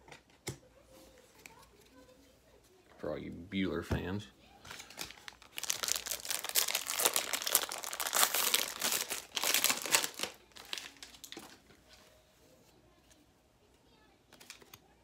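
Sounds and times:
plastic wrapper crinkling and tearing: 0:04.7 - 0:11.7.

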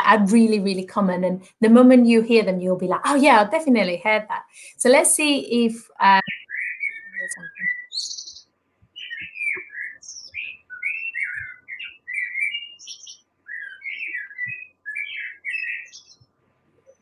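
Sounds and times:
blackbird singing: 0:06.1 - 0:17.0.

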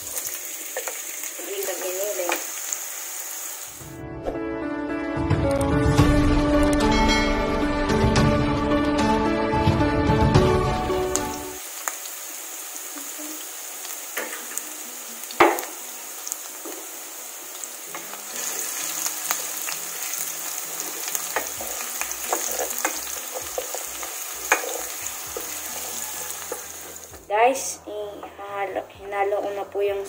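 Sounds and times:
onions sizzling in oil: 0:00.0 - 0:03.9, 0:10.7 - 0:27.2
wooden spatula scraping a pan: 0:20.8 - 0:27.2.

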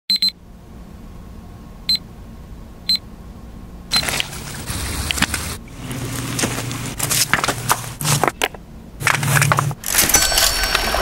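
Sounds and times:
faint hum: 0:00.1 - 0:11.0
gritty crunching and crackling: 0:04.0 - 0:10.1.

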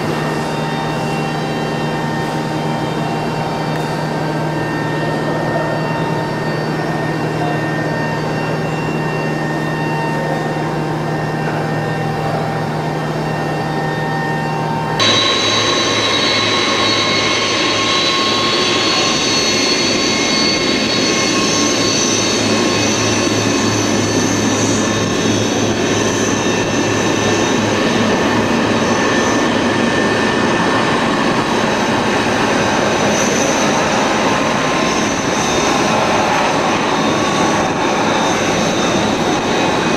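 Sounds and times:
jet engines whining: 0:00.0 - 0:39.9
turboprop engine humming: 0:00.0 - 0:39.9.

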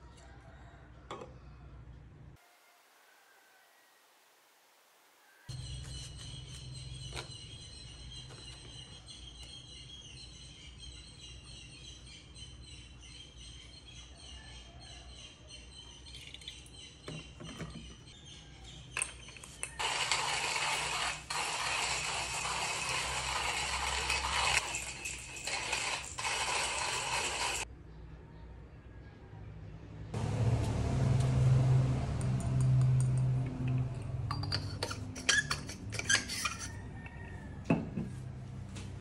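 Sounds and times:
hand coffee grinder grinding: 0:19.7 - 0:27.6, 0:34.6 - 0:36.8.

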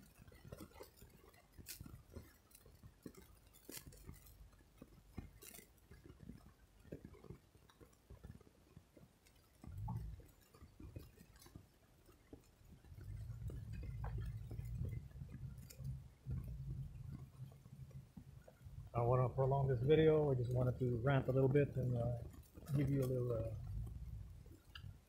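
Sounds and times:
faint clicks: 0:00.0 - 0:25.0
low rumble: 0:13.0 - 0:22.2, 0:23.3 - 0:25.0.

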